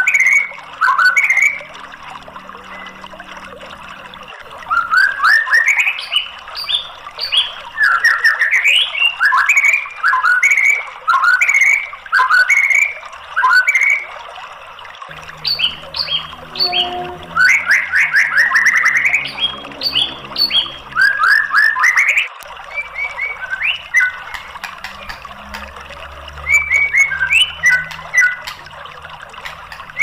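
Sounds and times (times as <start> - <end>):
bird singing whistled notes: 15.2 - 24.3.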